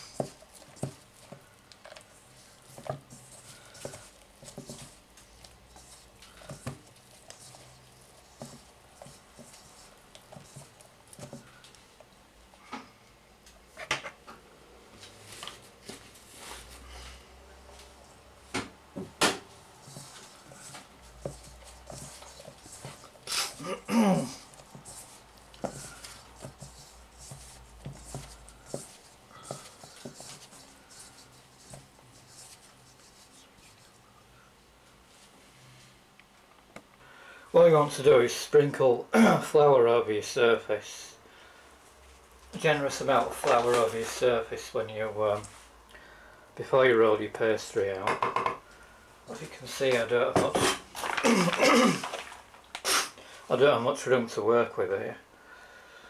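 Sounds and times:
hands kneading dough: 0.0 - 12.7, 15.0 - 35.4.

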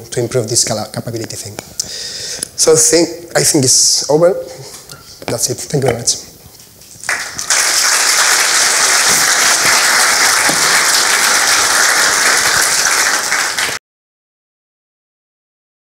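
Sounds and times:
audience applauding: 7.0 - 13.8.

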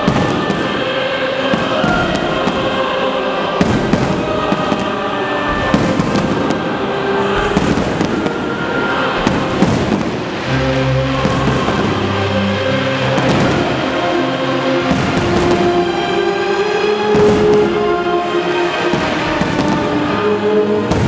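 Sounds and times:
firework crackling: 0.0 - 21.0
firework shells bursting: 3.6 - 14.0, 14.6 - 17.9, 18.6 - 20.3.

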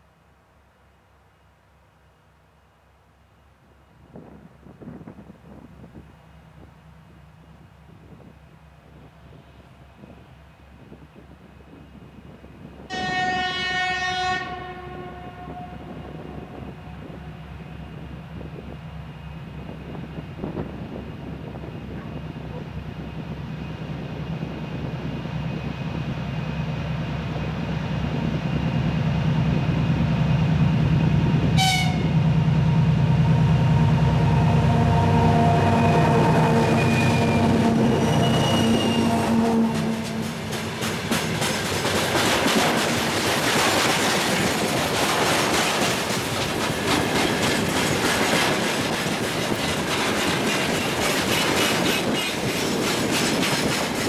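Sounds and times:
diesel locomotive engines running: 15.1 - 54.0
train wheels clickety-clack: 39.6 - 54.0.

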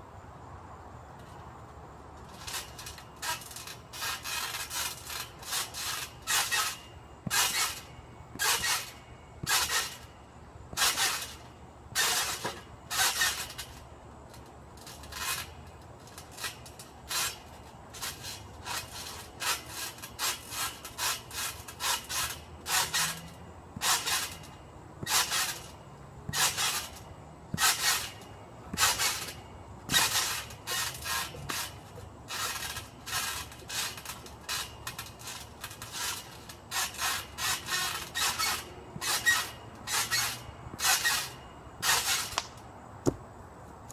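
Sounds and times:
trampoline springs bouncing: 0.5 - 43.9.

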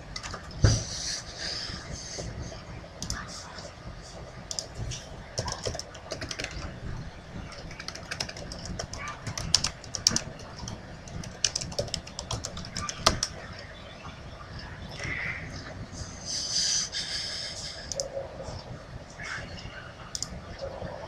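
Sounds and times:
keyboard key clicks: 7.5 - 13.3.

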